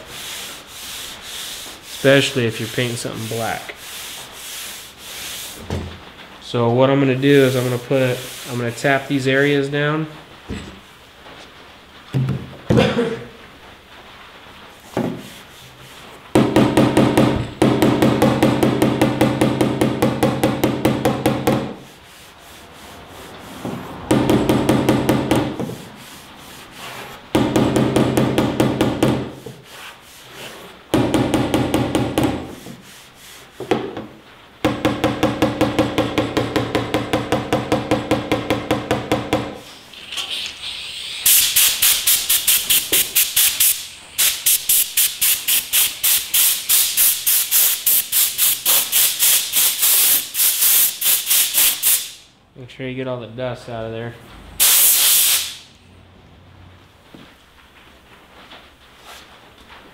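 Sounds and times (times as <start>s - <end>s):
body hammer tapping sheet metal: 16.4s - 21.8s, 27.4s - 29.4s, 30.9s - 32.5s, 34.6s - 39.6s
compressed air blow gun hissing: 39.7s - 52.2s, 54.6s - 55.7s.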